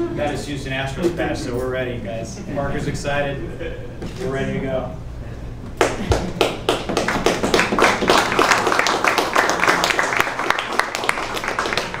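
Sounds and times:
audience clapping: 0:05.8 - 0:12.0.

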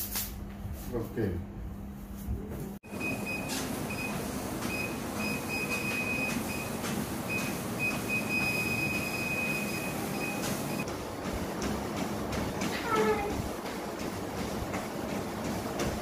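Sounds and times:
treadmill motor and belt rumble: 0:02.5 - 0:16.0.

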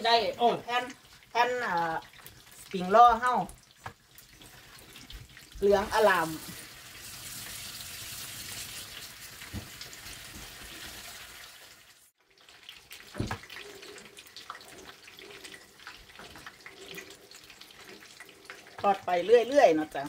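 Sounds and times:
small crackles: 0:02.0 - 0:05.7, 0:12.2 - 0:20.0
oil hissing in a wok: 0:04.4 - 0:12.2.

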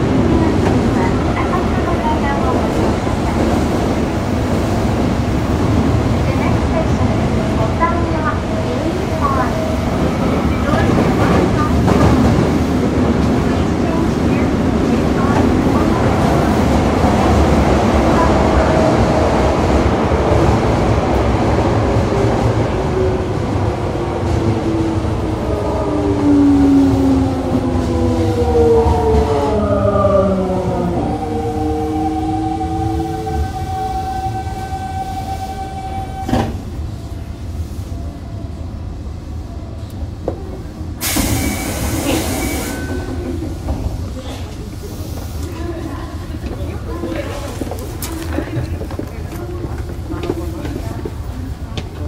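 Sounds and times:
subway car wheels rumbling: 0:00.0 - 0:52.0
hiss: 0:41.0 - 0:42.9.

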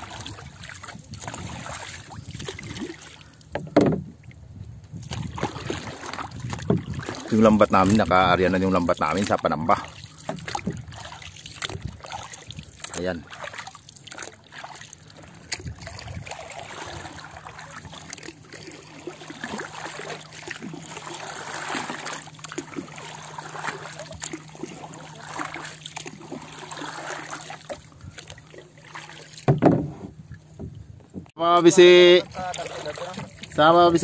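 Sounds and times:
water lapping against boat hull: 0:00.0 - 0:34.0
loud thump: 0:29.5 - 0:30.1.

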